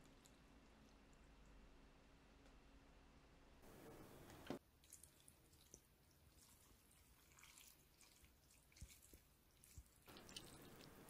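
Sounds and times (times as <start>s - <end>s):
faint drips: 4.4s - 11.0s.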